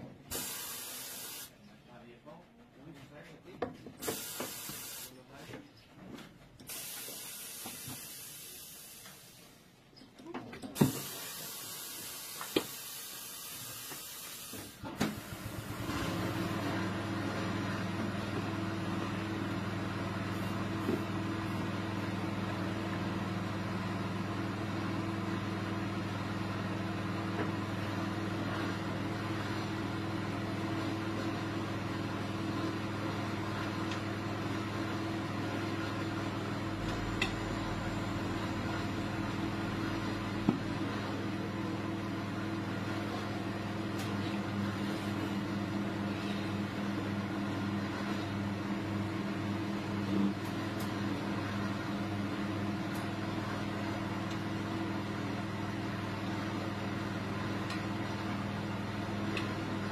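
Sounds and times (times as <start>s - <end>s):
air hissing: 0.3s - 1.6s, 4.0s - 5.2s, 6.7s - 9.6s, 10.8s - 15.7s.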